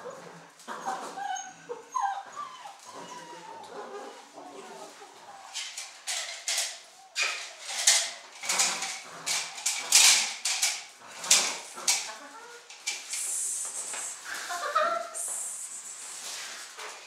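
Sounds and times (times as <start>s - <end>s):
puppy scrabbling: 5.5s - 13.2s
rag toy scraping on concrete: 5.7s - 14.6s.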